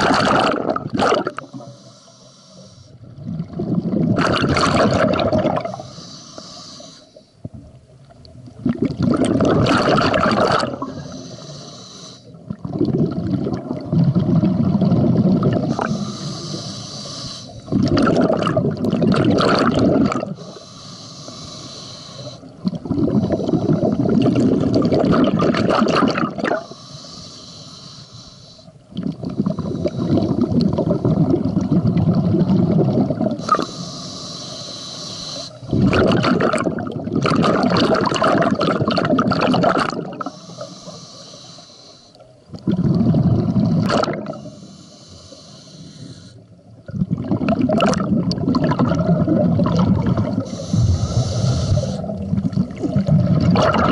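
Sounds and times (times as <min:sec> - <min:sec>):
bubbling exhalations: 0:00.0 - 0:01.6, 0:03.2 - 0:05.8, 0:08.6 - 0:11.3, 0:12.4 - 0:16.6, 0:17.6 - 0:20.5, 0:22.6 - 0:26.7, 0:29.0 - 0:33.7, 0:35.6 - 0:40.4, 0:42.5 - 0:44.5, 0:46.8 - 0:53.9
diver inhaling through regulator: 0:01.1 - 0:03.1, 0:05.4 - 0:07.4, 0:09.8 - 0:12.6, 0:15.5 - 0:18.5, 0:19.5 - 0:25.0, 0:26.2 - 0:31.1, 0:33.3 - 0:36.0, 0:39.8 - 0:46.5, 0:50.0 - 0:52.6.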